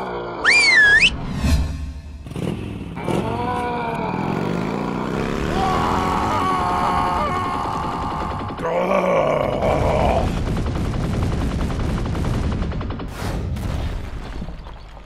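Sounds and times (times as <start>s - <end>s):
rapid cartoon gunshots: 5.1s - 14.5s.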